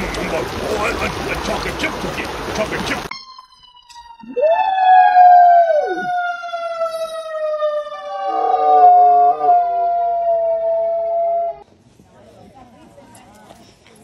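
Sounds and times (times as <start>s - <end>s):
emergency vehicle siren wailing: 3.1s - 11.6s
dog howling: 4.3s - 7.4s, 8.1s - 11.6s.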